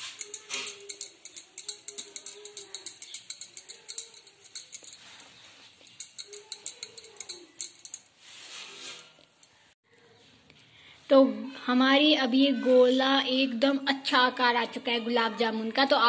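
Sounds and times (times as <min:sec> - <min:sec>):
bangles clinking: 0:00.0 - 0:09.7.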